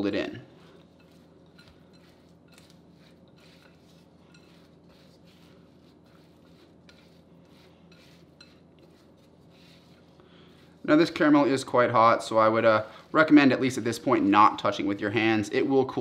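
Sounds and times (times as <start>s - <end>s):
spatula scraping glass bowl: 0.6s - 11.4s.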